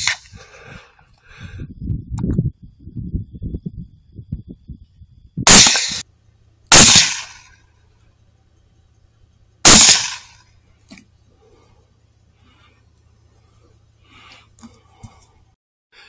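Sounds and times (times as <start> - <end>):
rifle shots echoing: 5.5 - 6.0, 6.7 - 7.5, 9.6 - 10.4.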